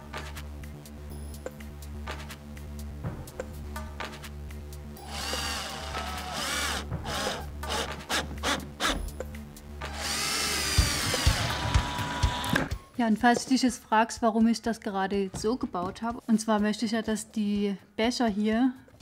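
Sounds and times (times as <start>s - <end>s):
drill driving screws into wood: 5.0s - 9.1s, 9.9s - 12.7s.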